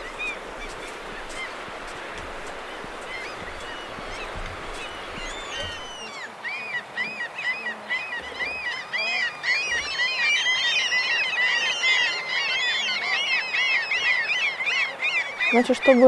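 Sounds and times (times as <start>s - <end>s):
flock of birds calling: 0.0s - 16.0s.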